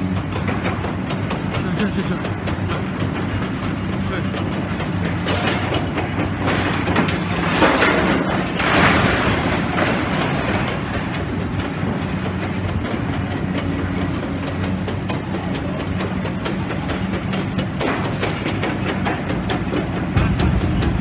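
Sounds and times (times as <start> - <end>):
excavator diesel engine humming: 0.0 - 21.0
debris crunching and clattering: 4.6 - 13.3
rubble crashing: 5.3 - 11.9.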